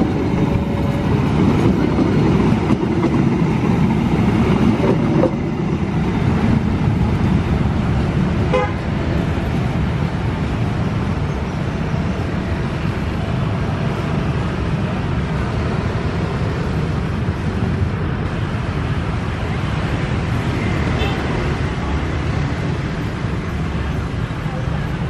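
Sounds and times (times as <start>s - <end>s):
train coaches rolling on rails: 0.0s - 25.0s.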